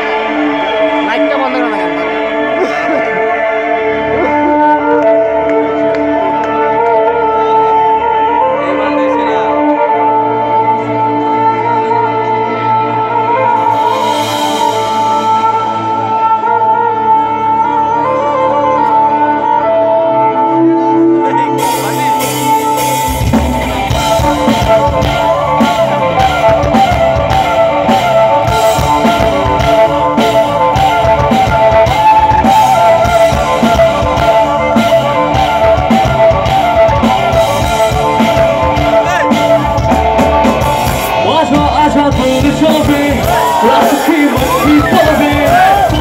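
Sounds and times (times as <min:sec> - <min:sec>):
live rock band: 0:00.0 - 0:46.0
person singing: 0:00.0 - 0:46.0.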